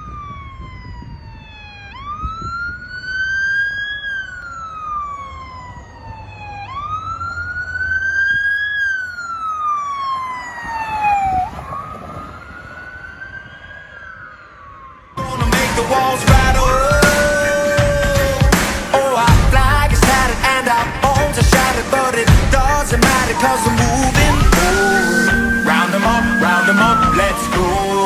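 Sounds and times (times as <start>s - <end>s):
police siren wailing: 0.0s - 28.0s.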